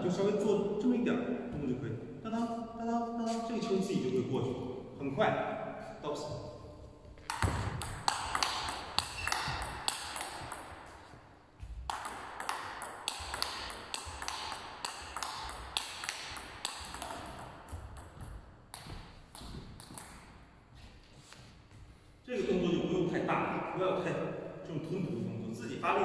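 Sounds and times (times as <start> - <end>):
table tennis ball clicking: 7.3 - 10.9, 11.9 - 20.2.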